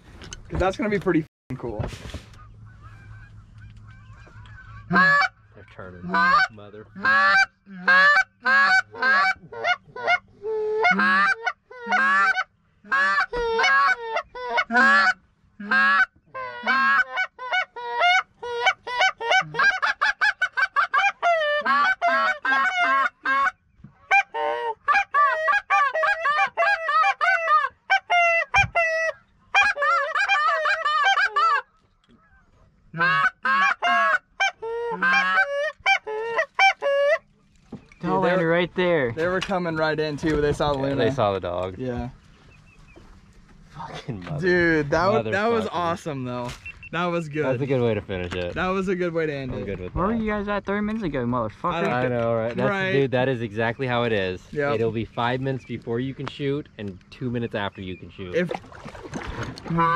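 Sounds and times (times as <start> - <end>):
geese honking: 2.3 - 37.4, 59.2 - 59.9
goose calls blown by hunters: 2.4 - 5.4, 6.0 - 23.5, 24.1 - 31.6, 32.2 - 37.3.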